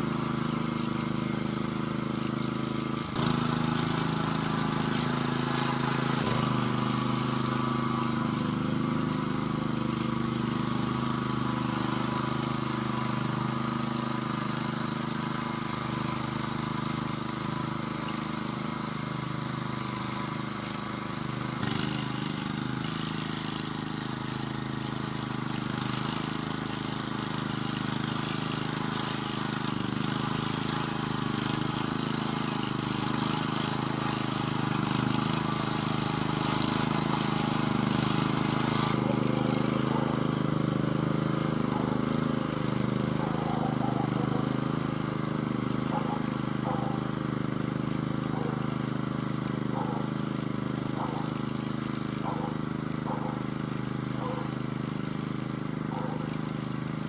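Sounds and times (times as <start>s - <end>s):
walking tractor engine running: 0.0s - 57.0s.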